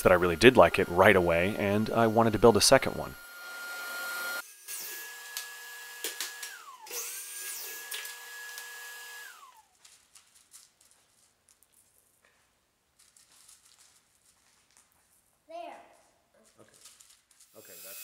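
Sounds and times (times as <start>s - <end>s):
miter saw motor whining: 0.0s - 9.6s
table saw running: 0.0s - 9.6s, 17.6s - 18.0s.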